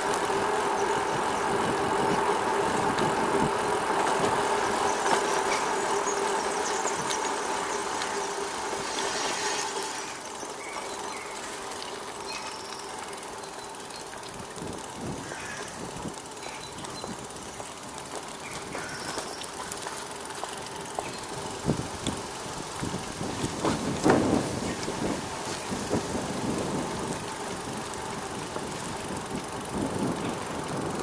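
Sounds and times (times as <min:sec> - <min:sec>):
vehicle engine humming: 0:00.0 - 0:31.0.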